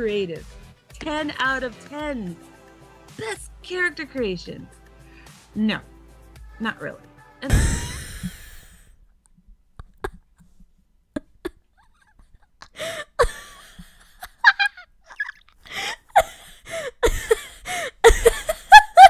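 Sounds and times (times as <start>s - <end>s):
person laughing: 11.2s - 19.0s.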